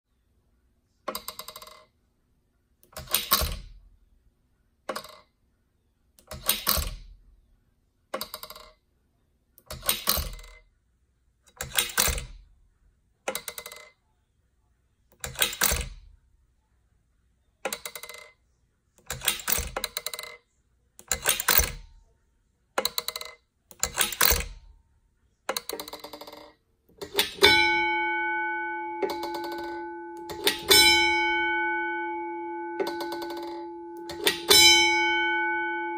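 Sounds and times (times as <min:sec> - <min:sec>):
clockwork mechanism clicking: 0:01.1 - 0:01.9, 0:02.9 - 0:03.7, 0:04.9 - 0:05.3, 0:06.2 - 0:07.0, 0:08.2 - 0:08.8, 0:09.6 - 0:10.6, 0:11.5 - 0:12.4, 0:13.3 - 0:13.9, 0:15.2 - 0:16.0, 0:17.7 - 0:18.3, 0:19.0 - 0:20.4, 0:21.0 - 0:21.8, 0:22.8 - 0:24.6, 0:25.5 - 0:27.8, 0:29.0 - 0:31.3, 0:32.8 - 0:34.9
alarm gong ringing: 0:27.2 - 0:35.9.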